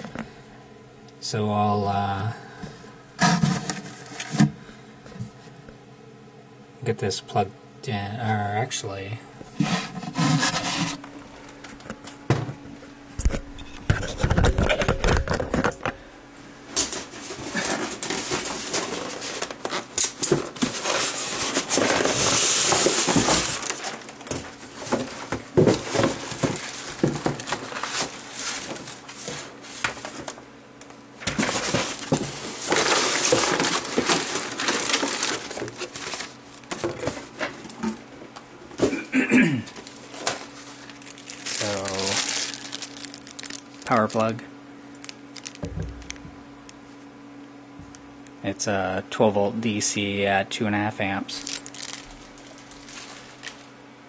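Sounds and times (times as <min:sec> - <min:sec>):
plastic and paper packing rustling: 0:09.6 - 0:11.8, 0:16.8 - 0:30.4, 0:31.2 - 0:39.0, 0:39.7 - 0:44.4, 0:45.0 - 0:46.3, 0:51.2 - 0:53.7.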